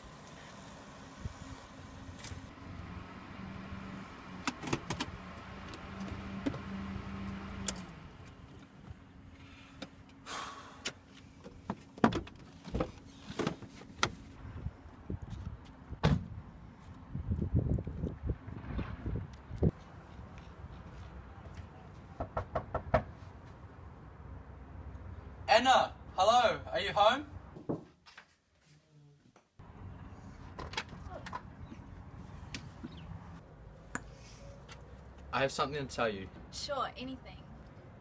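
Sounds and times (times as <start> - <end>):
car engine humming: 0.6 - 10.3.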